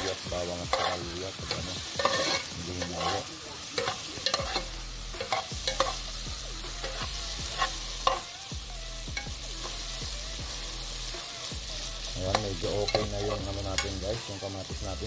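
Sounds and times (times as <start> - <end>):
metal spoon scraping a pot: 0.0 - 6.1, 6.8 - 8.3
light sizzle: 0.0 - 15.0.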